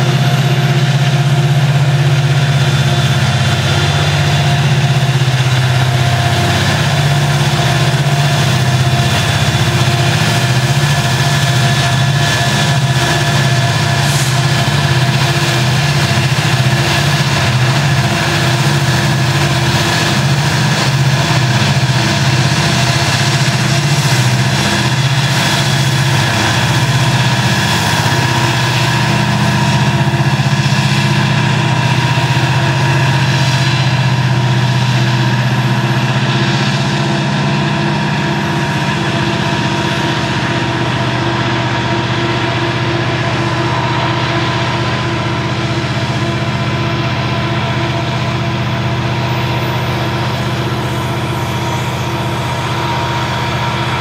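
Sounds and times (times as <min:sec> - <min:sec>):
deep diesel engine hum: 0:00.0 - 0:54.0
freight cars rolling: 0:00.0 - 0:54.0
thin steady whines: 0:00.0 - 0:54.0.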